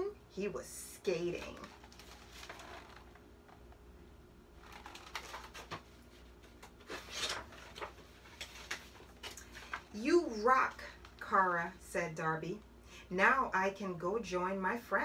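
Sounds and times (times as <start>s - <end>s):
paper pages turning: 1.2s - 3.7s, 4.6s - 10.0s.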